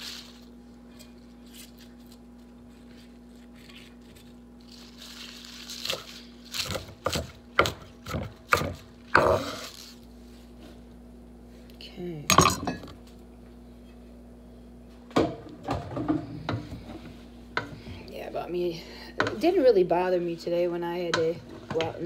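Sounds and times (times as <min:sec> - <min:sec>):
faint steady hum: 0:00.0 - 0:22.0
leaves rustling: 0:01.4 - 0:06.8
knife chopping on wooden board: 0:06.6 - 0:09.5.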